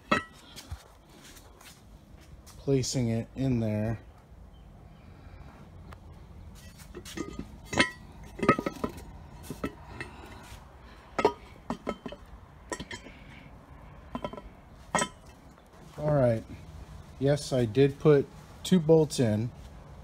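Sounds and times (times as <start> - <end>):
bolts clinking on metal: 0.0 - 0.4, 6.6 - 10.4, 11.2 - 13.4, 14.0 - 15.6.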